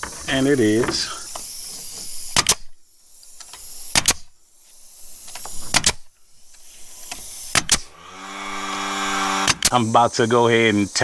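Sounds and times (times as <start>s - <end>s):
nail gun firing: 2.2s - 2.8s, 3.4s - 4.3s, 5.2s - 6.1s, 7.0s - 9.8s.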